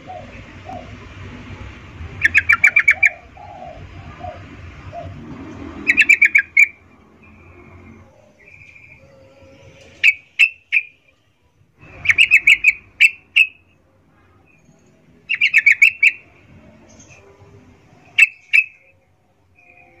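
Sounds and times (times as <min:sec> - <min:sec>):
bird chipping calls: 0:02.2 - 0:05.2, 0:05.8 - 0:06.8, 0:09.9 - 0:11.0, 0:11.9 - 0:13.6, 0:15.3 - 0:16.3, 0:18.2 - 0:18.9.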